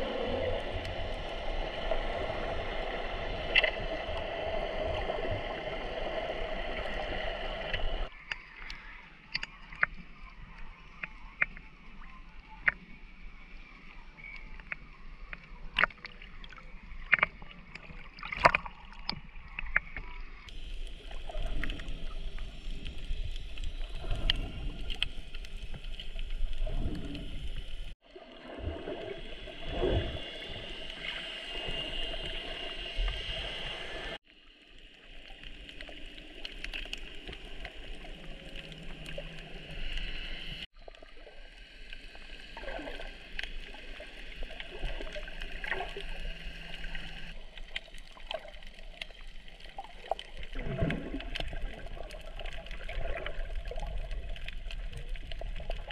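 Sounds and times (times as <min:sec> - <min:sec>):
muffled underwater hum: 0:00.0 - 0:17.8, 0:19.4 - 0:55.9
underwater bubbling: 0:00.0 - 0:55.9
water sloshing and splashing: 0:15.7 - 0:32.4, 0:35.2 - 0:55.9.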